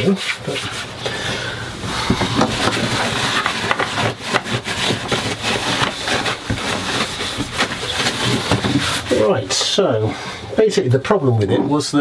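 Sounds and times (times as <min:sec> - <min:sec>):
hands handling plastic panel: 0:01.8 - 0:09.7.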